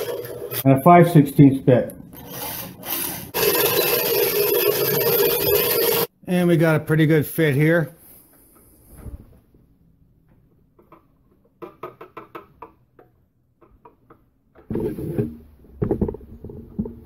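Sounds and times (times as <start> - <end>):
rubbing and knocking: 14.6 - 17.0.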